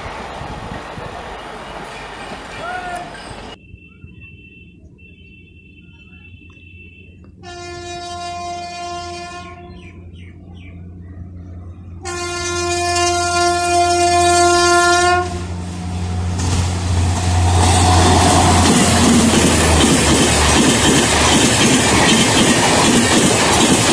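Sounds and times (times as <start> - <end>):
train running noise: 0.0 - 4.8, 5.8 - 23.9
train horn blasts: 3.7 - 9.9, 12.0 - 21.1.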